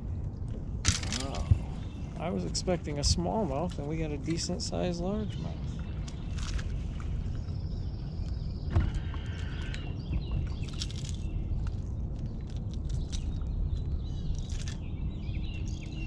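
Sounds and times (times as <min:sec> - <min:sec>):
steady low rumble: 0:00.0 - 0:16.0
small birds chirping: 0:00.6 - 0:16.0
fishing hooks clicking and rattling: 0:00.9 - 0:01.4.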